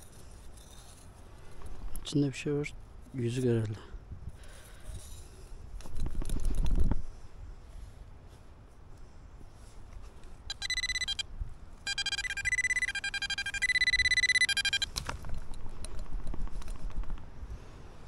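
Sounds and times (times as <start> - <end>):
high electronic beeping: 10.5 - 11.2, 11.9 - 14.9.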